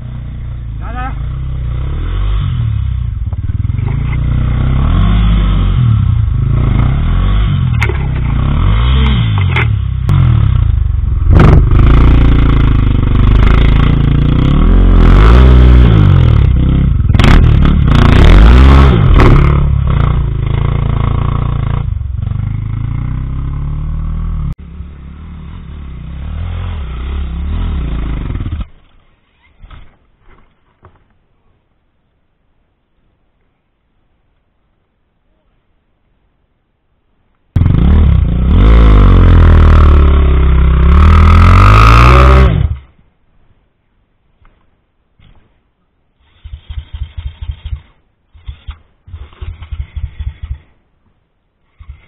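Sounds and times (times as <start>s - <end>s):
motorcycle engine revving: 0.0s - 29.9s, 37.6s - 43.0s, 46.2s - 50.8s, 51.6s - 52.0s.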